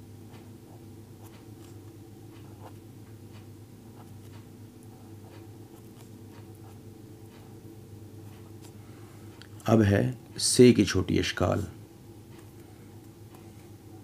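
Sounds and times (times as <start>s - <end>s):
faint low hum: 0.0s - 14.0s.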